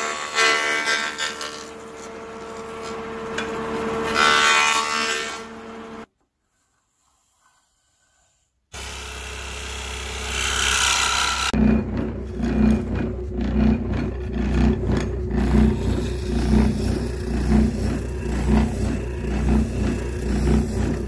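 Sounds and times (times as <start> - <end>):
board cutting noise: 0.0 - 6.1, 7.0 - 21.0
jointer humming: 8.8 - 21.0
scroll saw rumbling: 8.8 - 21.0.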